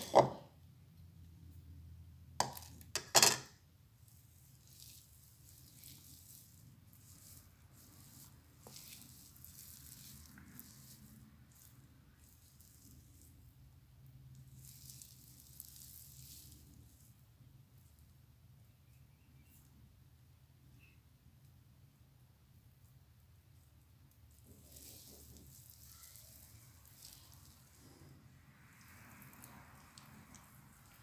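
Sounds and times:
hands rustling wet hair: 4.1 - 13.5, 24.3 - 31.0.

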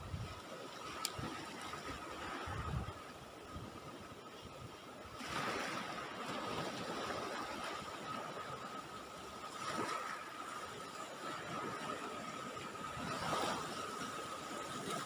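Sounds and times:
surf washing onto shore: 5.2 - 8.6, 9.4 - 15.0.

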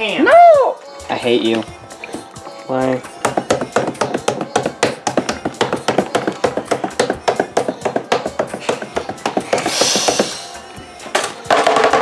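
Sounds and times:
rapid even knocking: 3.2 - 10.2.

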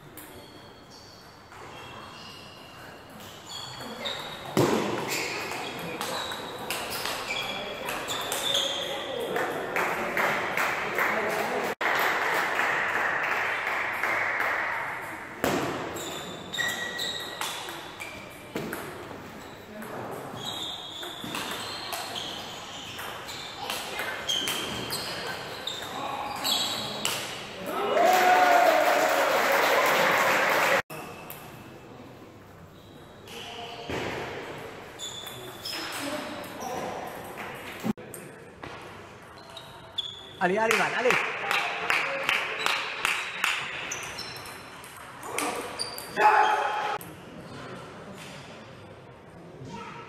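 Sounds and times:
short high squeaks: 16.0 - 17.4, 20.4 - 27.1
crowd shouting and cheering: 27.6 - 30.8.

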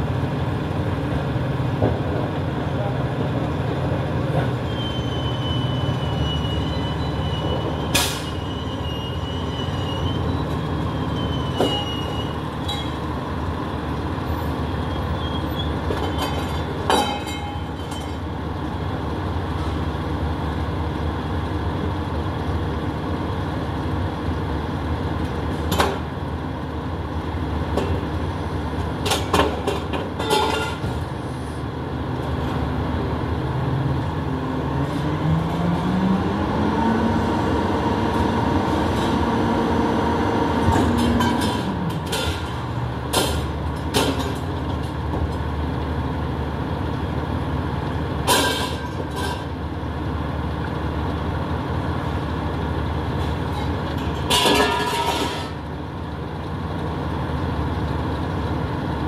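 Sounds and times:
diesel engine running: 0.0 - 59.0
high squeal: 4.6 - 13.0
metal bangs and clatters: 29.0 - 31.1, 40.7 - 44.9, 48.2 - 49.5, 53.5 - 55.6.

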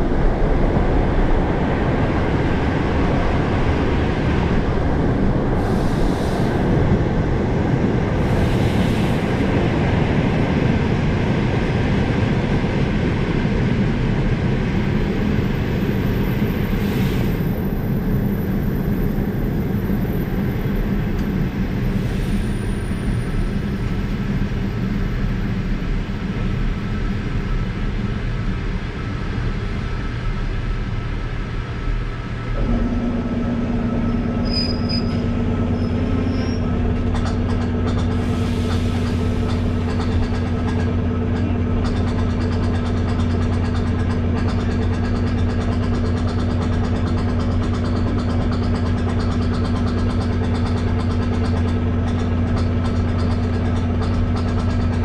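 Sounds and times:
steady low hum: 0.0 - 55.0
train rumbling: 0.0 - 55.0
faint high squeaks: 34.4 - 36.7.

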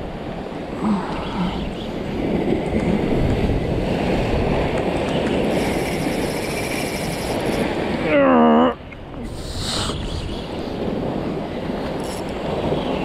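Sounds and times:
ocean surf washing against rocks: 0.0 - 8.0
wind on microphone: 0.0 - 13.0
fishing reel whining: 5.4 - 7.9, 12.0 - 12.5.

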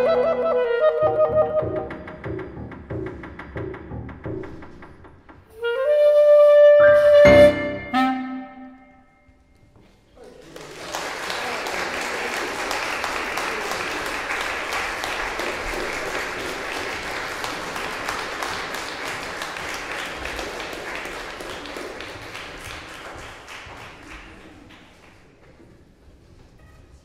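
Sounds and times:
audience applauding: 10.2 - 25.4.

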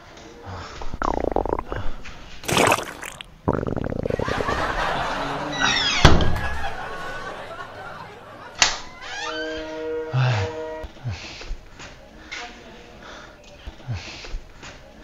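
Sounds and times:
comic fart sound effects: 0.8 - 4.8.

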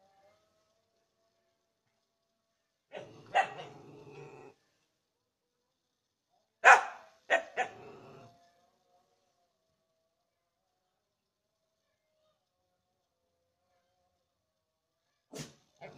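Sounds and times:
dog barking: 2.9 - 3.8, 6.6 - 7.9.

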